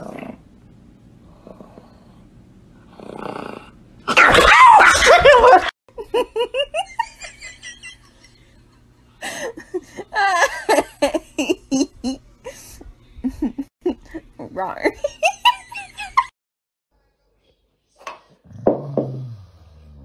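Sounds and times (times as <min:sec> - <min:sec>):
human laughter in bursts: 0:04.6 - 0:08.4.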